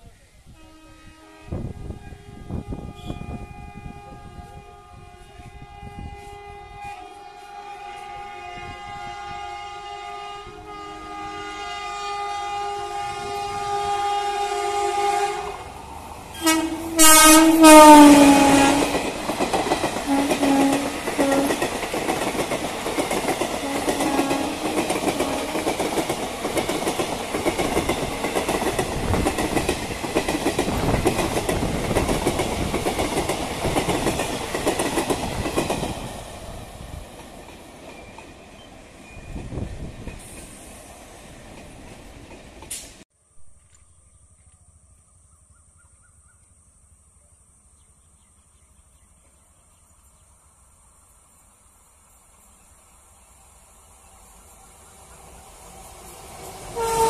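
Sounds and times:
train horn blasts: 0.5 - 15.7, 16.3 - 19.1, 20.0 - 21.7, 23.5 - 25.8, 56.7 - 57.0
coaches rattling over rail joints: 17.6 - 43.0.

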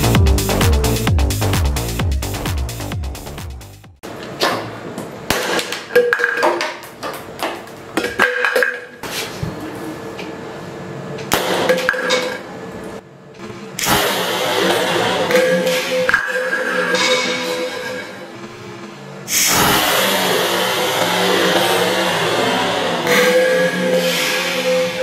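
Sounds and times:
electronic background music: 0.0 - 4.0, 13.8 - 25.0.

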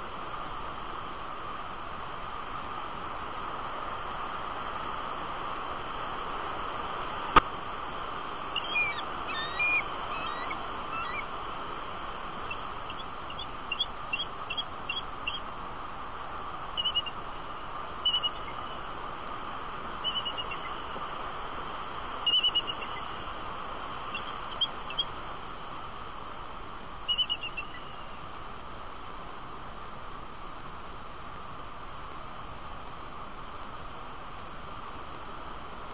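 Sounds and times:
steady hiss: 0.0 - 35.9
eagles calling: 8.1 - 15.6, 16.6 - 17.3, 17.9 - 19.0, 19.9 - 21.0, 22.1 - 25.2, 27.0 - 28.2.

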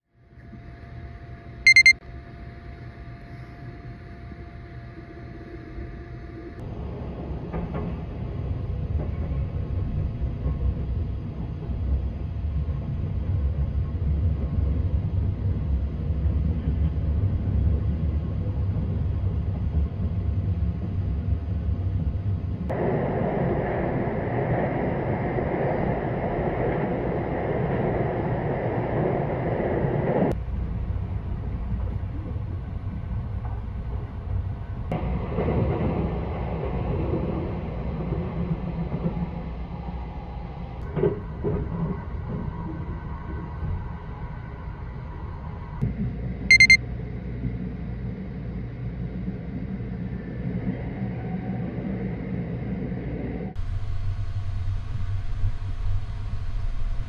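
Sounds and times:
high electronic beeps: 1.7 - 1.9, 46.5 - 46.8
train running rumble: 6.6 - 45.8.

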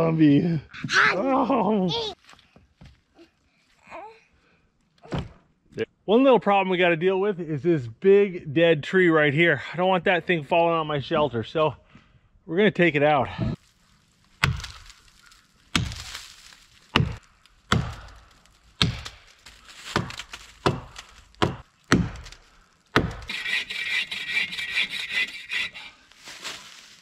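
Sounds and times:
axe chopping tree trunk: 14.4 - 23.3
bow saw rasping through trunk: 18.8 - 26.6.

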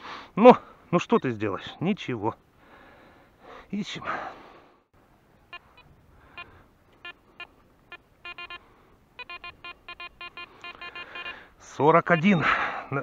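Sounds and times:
metal detector beeps: 5.5 - 8.6, 9.2 - 11.4, 12.0 - 12.7.

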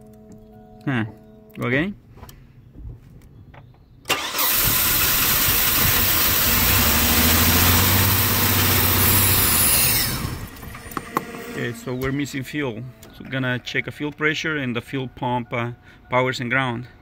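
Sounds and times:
engine cranking: 4.1 - 12.0
engine running: 4.1 - 12.2.

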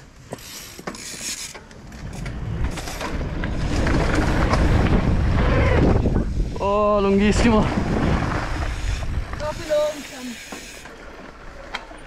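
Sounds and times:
tyre noise on dirt: 0.0 - 12.0
bike clicks and rattles: 0.2 - 5.4, 8.0 - 12.0
wind noise on microphone: 1.9 - 10.0.

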